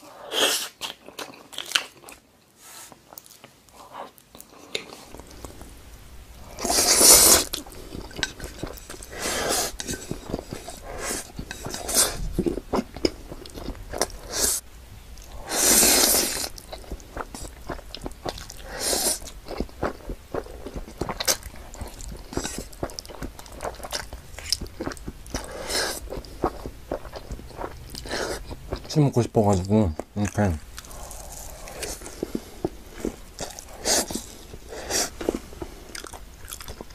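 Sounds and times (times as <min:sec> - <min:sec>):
noodle slurping: 0:06.5 - 0:12.6, 0:15.4 - 0:16.6.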